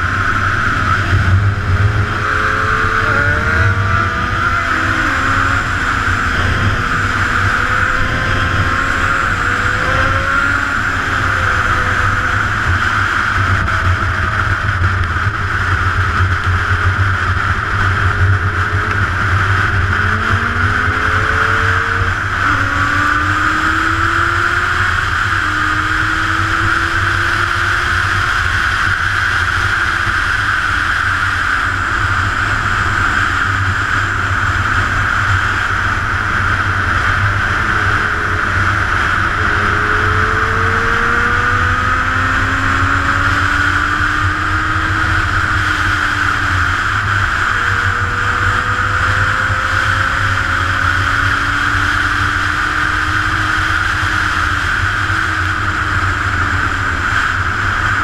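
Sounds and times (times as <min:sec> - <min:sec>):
motorcycle engine running: 0:00.0 - 0:58.0
wind and road noise: 0:00.0 - 0:58.0.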